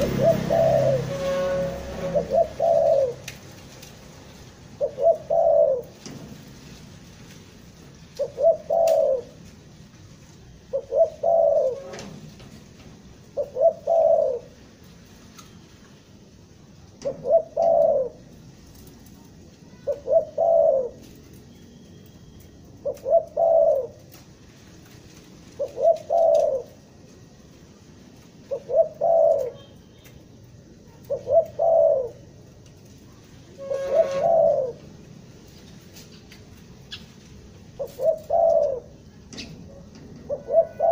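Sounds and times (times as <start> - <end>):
dove cooing: 0.0 - 3.4, 4.6 - 6.0, 8.2 - 9.4, 10.6 - 12.5, 13.2 - 14.6, 17.0 - 18.9, 19.7 - 21.2, 22.8 - 24.2, 25.5 - 27.3, 28.4 - 29.8, 30.8 - 32.4, 33.5 - 35.0, 37.6 - 40.9.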